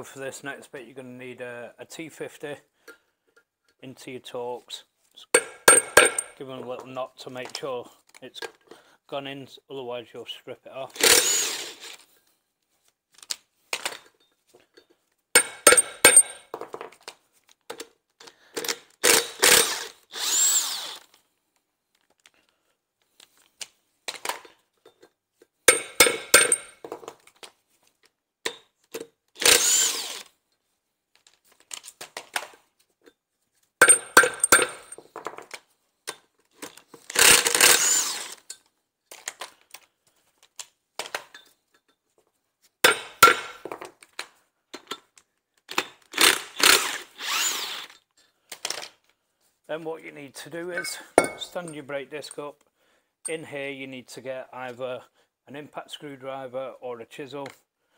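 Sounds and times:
impact gun rattling: 5.4s - 6.4s, 15.4s - 16.8s, 25.7s - 27.2s, 33.8s - 35.6s, 50.8s - 51.6s
steel hub ringing: 5.4s - 6.4s, 15.4s - 16.4s, 50.8s - 51.6s
hammer tapping on metal: 50.8s - 51.5s.

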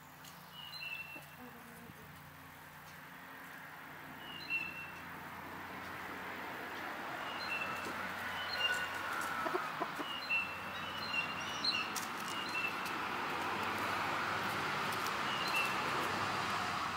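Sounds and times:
chickens clucking: 7.6s - 13.0s.

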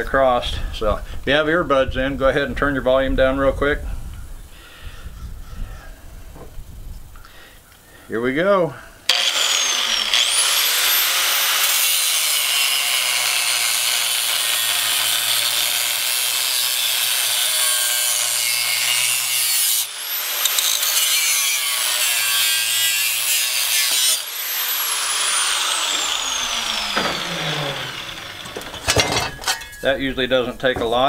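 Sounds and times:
angle grinder cutting metal: 9.1s - 30.0s.

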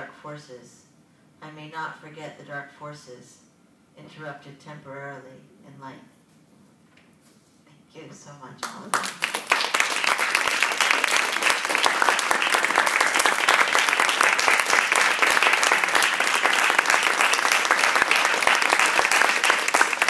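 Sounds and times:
audience applauding: 8.9s - 20.0s.

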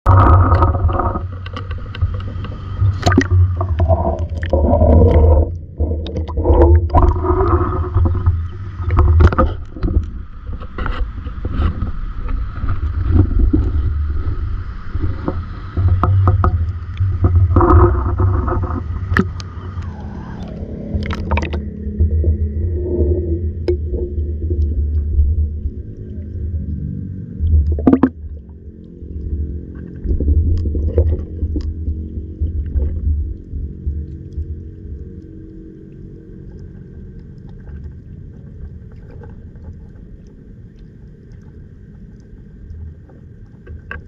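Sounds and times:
muffled underwater hum: 0.0s - 44.0s
sharp clicks and scrapes: 0.1s - 13.8s, 15.0s - 22.4s.

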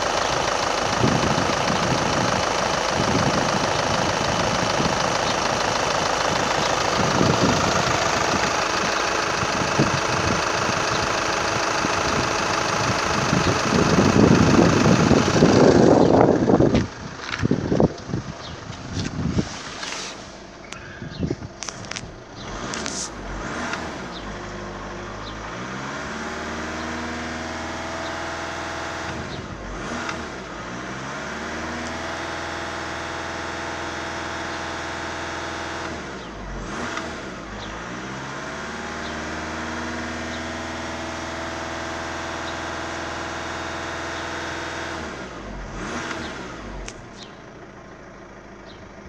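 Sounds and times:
car engine revving: 0.0s - 20.9s, 21.5s - 48.8s.

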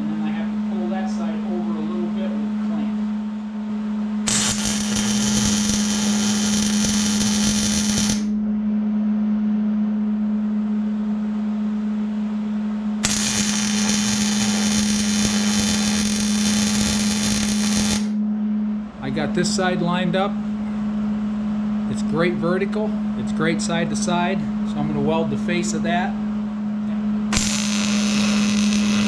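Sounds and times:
steady low hum: 0.0s - 29.0s
welding arc crackling and hissing: 4.3s - 8.3s, 13.0s - 18.2s, 27.3s - 29.0s.

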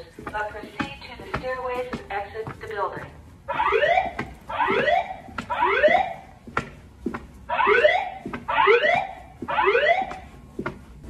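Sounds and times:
rising sweep alarm tone: 3.5s - 6.3s, 7.5s - 10.2s.

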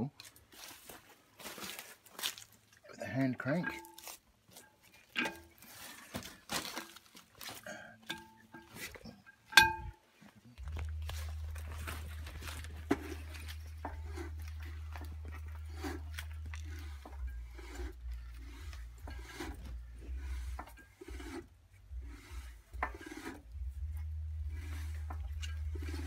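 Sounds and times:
steady low hum: 7.7s - 26.0s.

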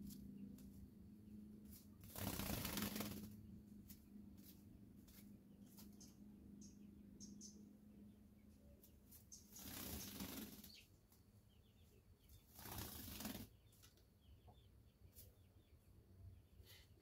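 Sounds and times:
bird wingbeats: 1.7s - 3.4s, 9.1s - 10.8s, 12.5s - 13.5s.

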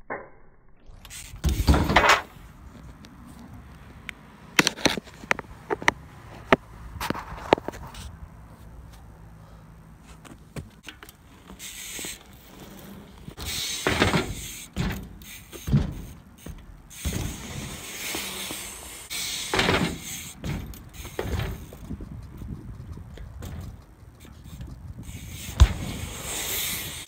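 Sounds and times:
bike tyre rumble and scraping: 0.9s - 27.0s
bike knocking on ramp: 13.3s - 18.7s, 19.4s - 24.8s, 25.5s - 26.2s.

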